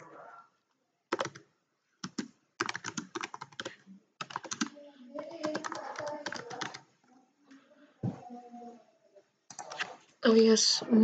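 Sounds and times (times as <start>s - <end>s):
computer keyboard typing: 1.1s - 6.9s, 9.5s - 9.9s.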